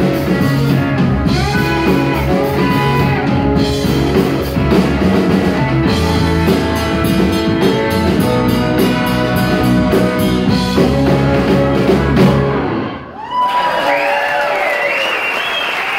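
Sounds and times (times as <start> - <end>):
live rock band playing: 0.0 - 13.2
audience cheering and applause: 1.3 - 3.8, 12.7 - 15.9.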